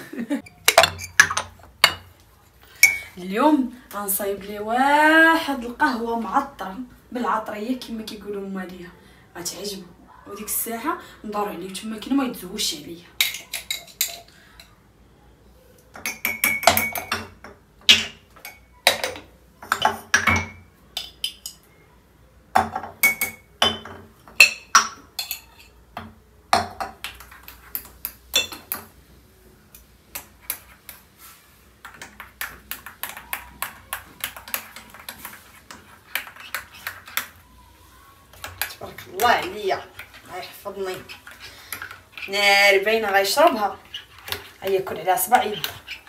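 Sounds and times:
spoon clinking on porcelain: 0.4 - 2.1, 2.8 - 3.1, 13.2 - 14.8, 16.0 - 21.7, 22.6 - 25.8.

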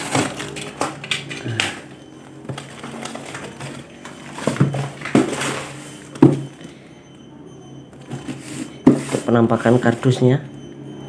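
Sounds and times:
box knocking on tiled floor: 6.2 - 6.5.

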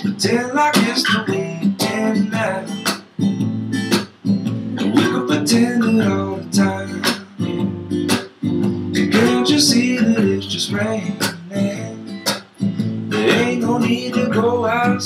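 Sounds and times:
man singing: 0.0 - 3.0, 4.8 - 7.4, 9.0 - 12.4, 13.1 - 15.0
acoustic guitar strumming: 0.0 - 15.0.

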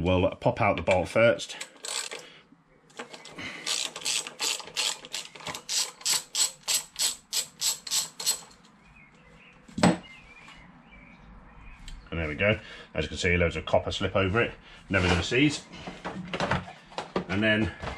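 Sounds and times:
ratchet wrench clicking: 1.7 - 2.2, 3.6 - 8.6.

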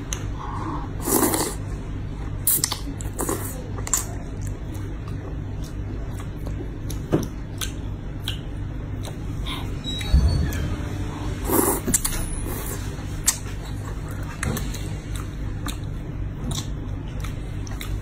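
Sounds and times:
low hum: 0.0 - 18.0
person slurping noodles: 1.0 - 1.6, 11.4 - 12.0
chewing: 2.5 - 9.7, 11.5 - 18.0.

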